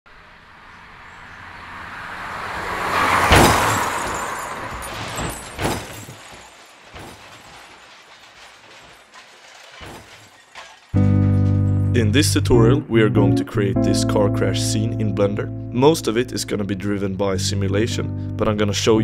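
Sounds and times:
loud car crash impact: 1.7s - 11.7s
crunches and knocks of tumbling car: 2.7s - 11.7s
glass shattering: 3.0s - 11.7s.

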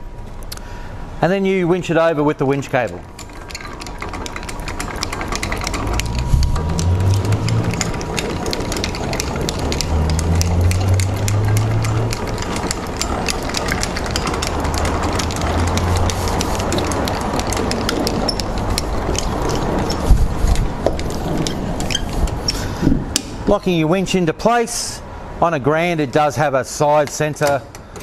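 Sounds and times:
winch ratchet clicking: 2.8s - 23.3s
low hum: 3.1s - 22.0s.

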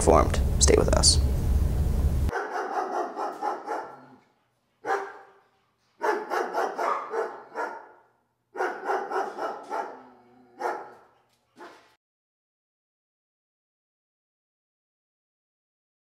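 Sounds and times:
dog barking: 2.3s - 4.2s, 4.8s - 12.0s.

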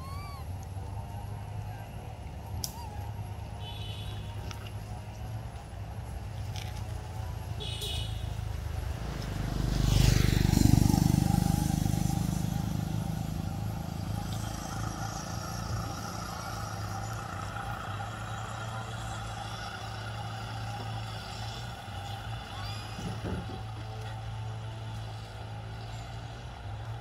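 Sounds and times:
low engine hum: 0.0s - 27.0s
vehicle passing: 8.3s - 27.0s.

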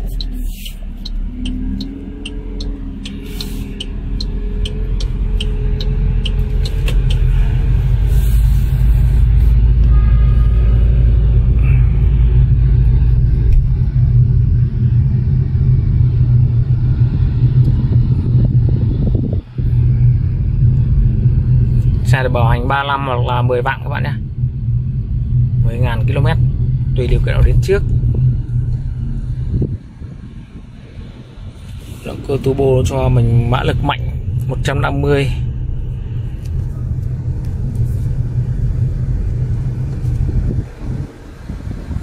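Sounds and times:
turn signal ticking: 0.0s - 8.1s
engine and road noise rumble: 0.0s - 42.0s.

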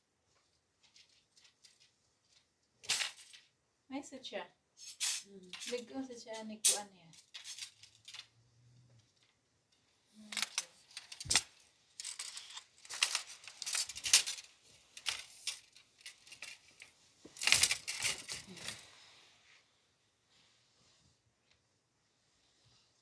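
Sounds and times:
cloth rustling: 10.6s - 21.4s.

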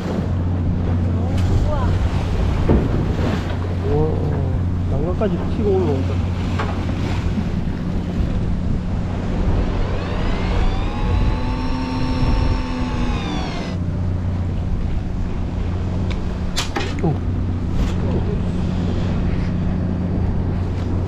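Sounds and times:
boat engine droning: 0.0s - 21.0s
wind on microphone: 6.2s - 16.6s
rising and falling whine: 8.8s - 14.4s.

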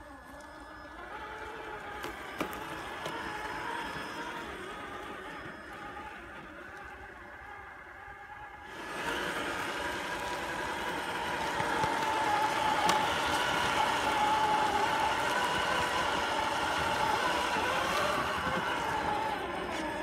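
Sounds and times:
electric motor whine: 0.0s - 20.0s.

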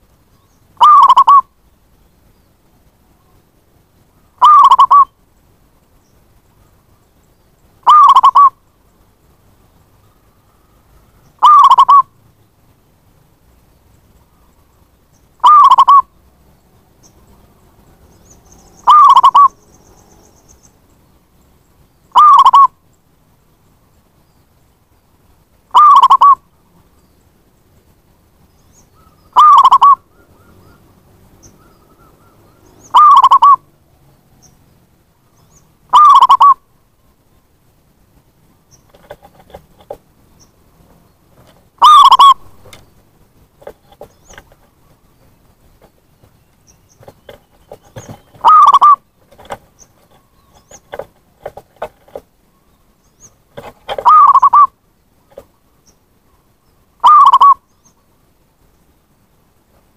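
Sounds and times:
dove cooing: 0.8s - 1.5s, 4.4s - 5.1s, 7.8s - 8.6s, 11.4s - 12.1s, 15.4s - 16.1s, 18.8s - 19.6s, 22.1s - 22.7s, 25.7s - 26.4s, 29.3s - 30.8s, 31.5s - 33.6s, 35.9s - 36.6s, 41.4s - 42.8s, 47.0s - 52.2s, 53.6s - 54.7s, 57.0s - 57.6s
faint clicks and rustles: 38.1s - 41.8s, 42.5s - 48.5s, 49.1s - 52.6s, 53.2s - 54.1s, 55.2s - 55.6s.

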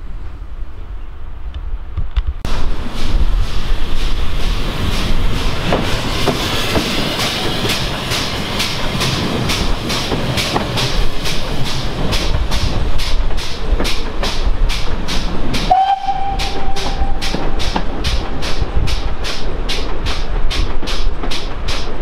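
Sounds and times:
steam train running: 2.5s - 22.0s
steam whistle: 15.7s - 17.3s.

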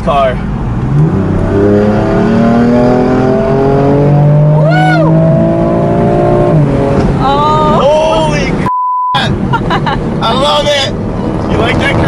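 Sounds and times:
car engine accelerating: 0.4s - 12.0s
person whooping: 4.6s - 5.2s.

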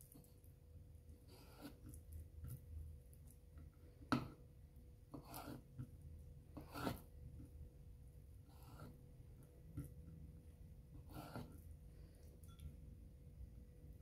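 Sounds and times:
knife slicing raw meat: 5.1s - 5.8s, 6.6s - 7.1s.

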